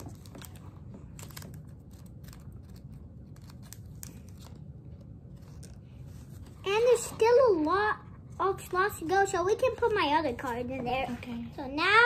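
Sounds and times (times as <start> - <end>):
trading cards clicking and rustling: 0.0 - 6.0.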